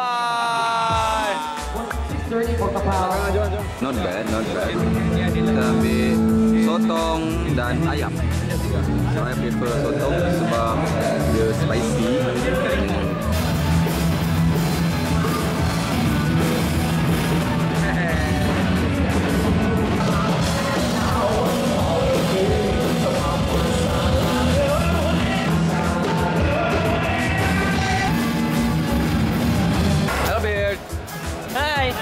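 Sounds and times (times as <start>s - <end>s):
live rock band: 1.0s - 32.0s
person singing: 17.7s - 28.5s.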